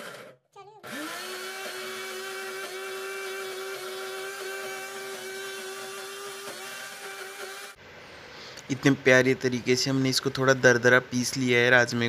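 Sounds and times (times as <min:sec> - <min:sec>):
mixer grinder whining: 0:00.0 - 0:07.8.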